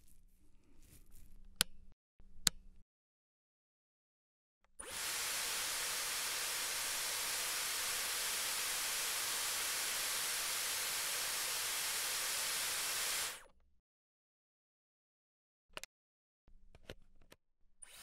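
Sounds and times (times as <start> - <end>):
hair styler blowing air: 4.8 - 13.5.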